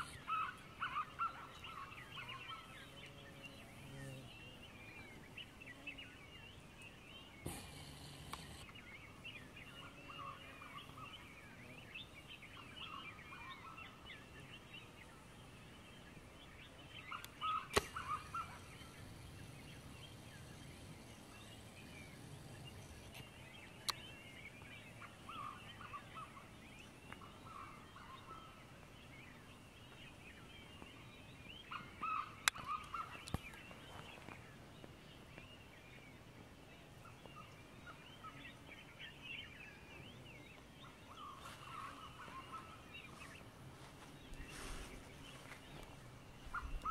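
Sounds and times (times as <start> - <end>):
small birds chirping: 0.0 - 46.9
sharp clicks: 7.5 - 8.7
lower-pitched bird call: 17.0 - 19.1, 31.6 - 33.5.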